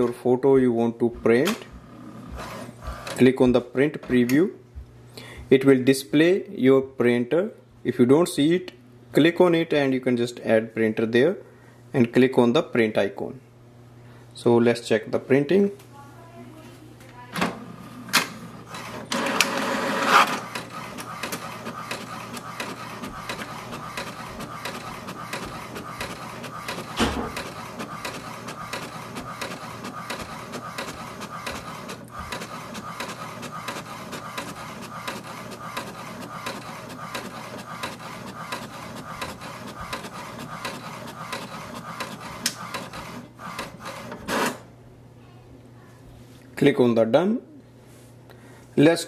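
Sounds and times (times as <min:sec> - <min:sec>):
printer paper feed whir: 0:01.5 - 0:03.5, 0:17.6 - 0:44.7
inkjet printer printing: 0:01.7 - 0:03.3, 0:17.6 - 0:44.7
printer knock: 0:19.2 - 0:44.5.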